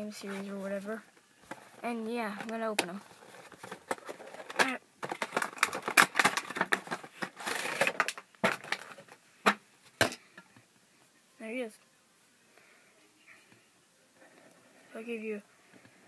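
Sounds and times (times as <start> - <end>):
cardboard and plastic crackling: 1.4 - 9.6.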